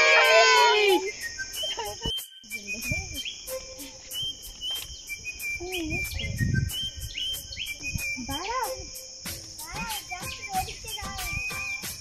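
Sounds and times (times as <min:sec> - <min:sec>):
insects droning: 0:00.0 - 0:12.0
whistled bird calls: 0:00.0 - 0:12.0.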